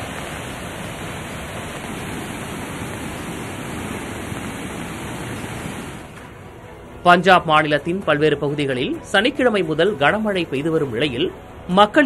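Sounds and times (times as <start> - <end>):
floodwater rushing: 0.0 - 6.9.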